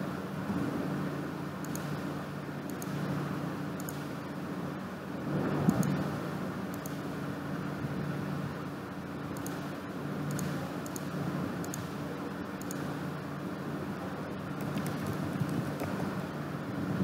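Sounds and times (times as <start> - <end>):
low background hum: 0.0 - 17.0
mouse clicks: 1.6 - 1.9, 3.8 - 4.0, 6.7 - 7.0, 10.3 - 11.9, 12.6 - 12.9.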